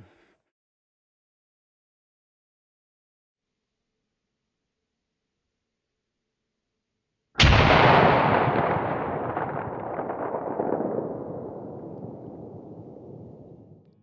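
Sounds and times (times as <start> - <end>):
slowed rifle shot boom: 7.4 - 14.0.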